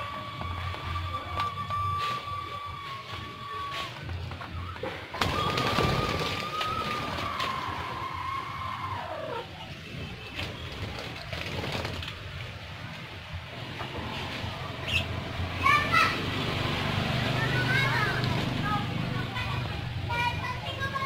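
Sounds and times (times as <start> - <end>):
whistle-like tone: 0.5 - 4.0
budgerigars chirping: 14.8 - 15.2.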